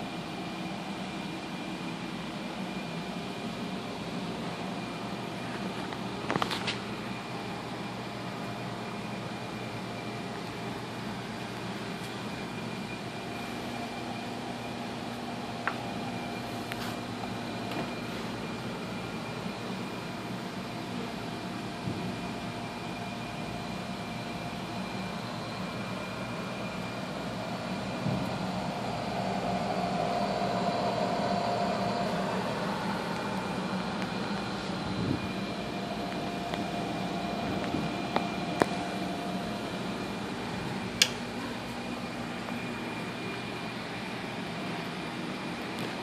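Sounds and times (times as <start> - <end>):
cooling fan whirring: 0.0 - 46.0
faint steady tones: 7.0 - 45.6.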